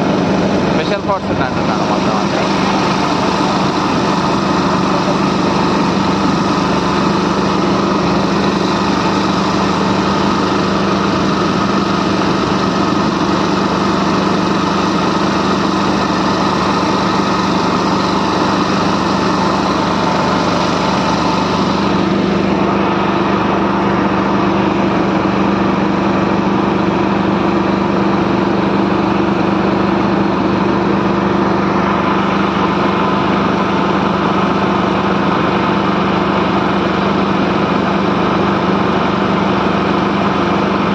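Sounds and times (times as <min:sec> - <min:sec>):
small boat engine running: 0:00.0 - 0:40.9.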